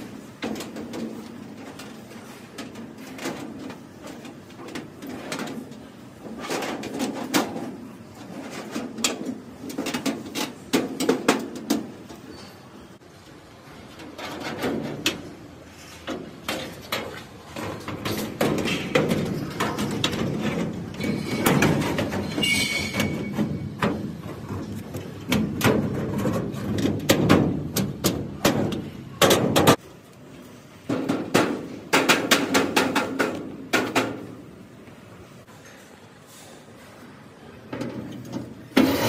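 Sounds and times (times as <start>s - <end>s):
metal lock parts clicking and scraping: 16.3s - 29.8s
brief high squeak: 22.2s - 23.2s.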